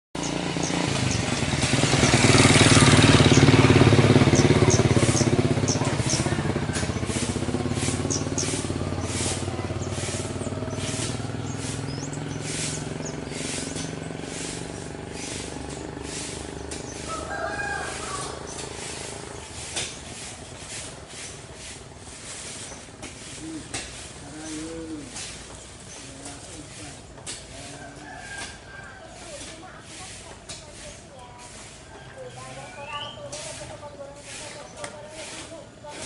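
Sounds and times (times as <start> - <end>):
sharp ticking bird notes: 0.2 - 20.2
birds chirping: 0.2 - 36.0
motor vehicle passing: 0.2 - 36.0.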